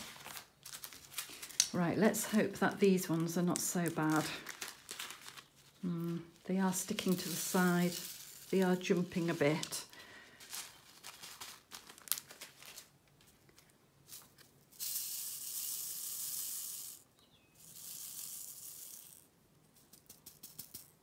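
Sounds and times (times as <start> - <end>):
rattling hiss of tray shaken: 7.0 - 8.9
plastic beads clicking into a tray: 17.6 - 21.0.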